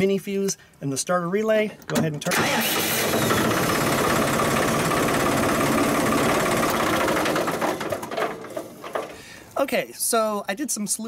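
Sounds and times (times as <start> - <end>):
tractor diesel engine idling: 2.3 - 9.2.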